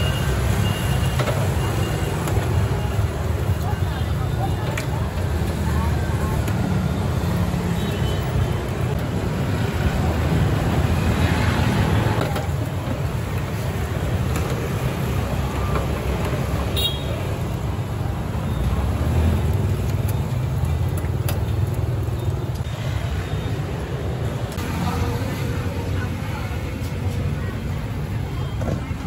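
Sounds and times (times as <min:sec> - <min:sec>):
motorbikes passing: 0:00.0 - 0:29.0
street traffic rumble: 0:00.0 - 0:29.0.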